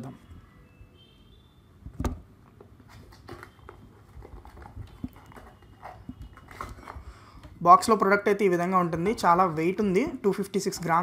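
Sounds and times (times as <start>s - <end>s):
cardboard scraping and rustling: 2.8s - 7.1s.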